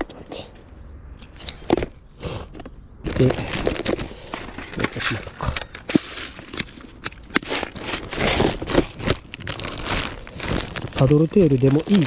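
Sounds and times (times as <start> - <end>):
plastic packets rustling: 3.0 - 12.0.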